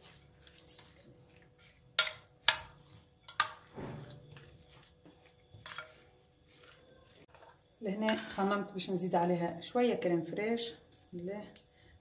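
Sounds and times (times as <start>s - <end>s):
fork clinking against glass bowl: 2.0s - 4.6s, 5.6s - 6.0s.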